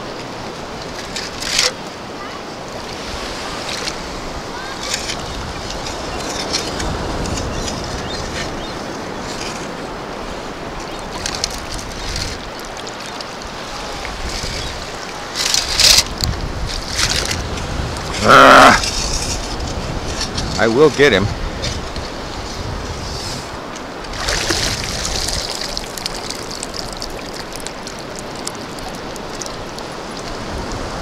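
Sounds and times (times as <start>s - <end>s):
water sloshing around legs: 0.0s - 20.4s, 23.4s - 30.9s
scoop knocks and splashes: 24.1s - 29.5s.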